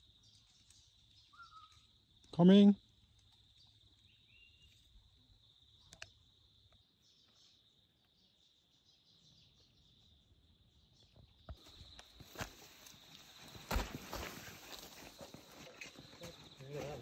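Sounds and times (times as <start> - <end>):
high-pitched insect trill: 0.0 - 9.1
click: 5.9 - 6.8.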